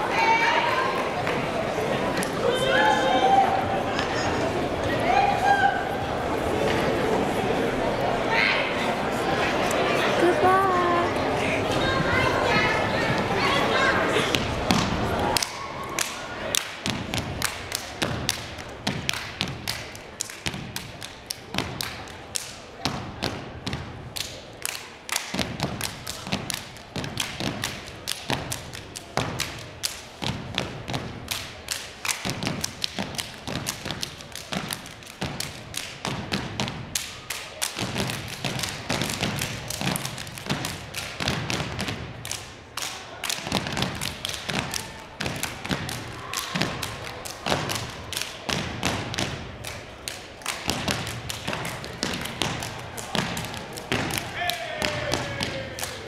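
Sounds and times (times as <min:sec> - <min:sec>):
stomping and clapping: 0:14.3 - 0:56.0.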